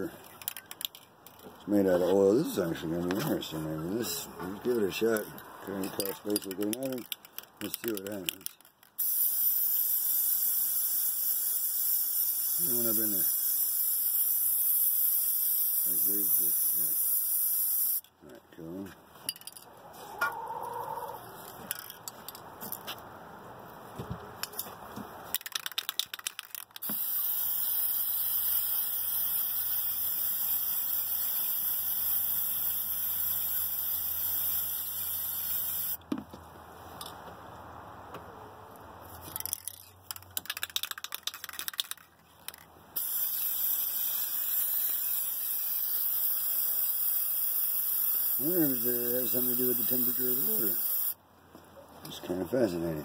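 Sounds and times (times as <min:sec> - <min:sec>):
spray can ball rattling: 0:00.2 - 0:02.0, 0:04.1 - 0:18.1, 0:19.3 - 0:19.7, 0:21.4 - 0:22.9, 0:25.3 - 0:36.0, 0:39.1 - 0:51.2
spray can hissing: 0:09.0 - 0:18.0, 0:25.5 - 0:36.0, 0:40.5 - 0:51.2.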